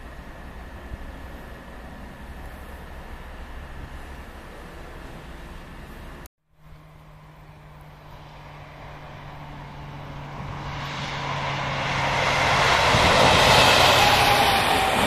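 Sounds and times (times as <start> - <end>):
diesel locomotive passing: 0.0 - 15.0
train wheel noise: 10.1 - 15.0.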